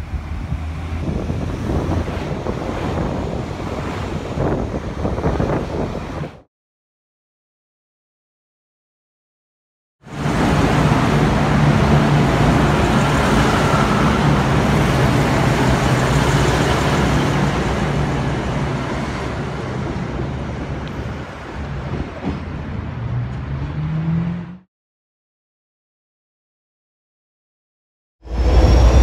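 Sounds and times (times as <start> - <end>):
diesel railcar engine drone: 0.0 - 6.4, 10.1 - 24.6, 28.2 - 29.0.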